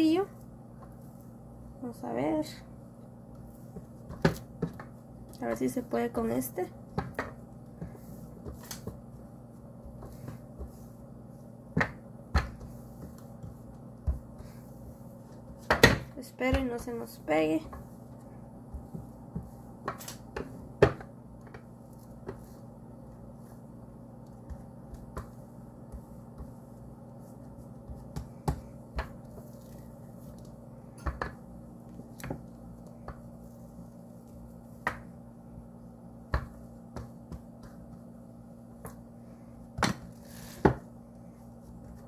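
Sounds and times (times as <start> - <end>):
rolling pin rolling dough: 0.0 - 42.0
steady low hum: 0.0 - 42.0
rolling pin knocking on board: 18.7 - 21.6.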